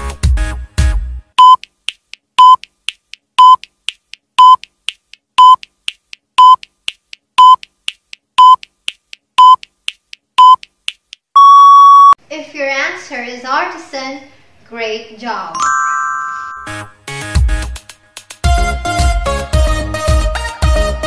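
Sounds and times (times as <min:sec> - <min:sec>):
short electronic beeps: 0:01.4 - 0:01.6, 0:02.4 - 0:02.6, 0:03.4 - 0:03.6, 0:04.4 - 0:04.6, 0:05.4 - 0:05.6, 0:06.4 - 0:06.6, 0:07.4 - 0:07.6, 0:08.4 - 0:08.6, 0:09.4 - 0:09.6, 0:10.4 - 0:10.6, 0:11.4 - 0:12.2.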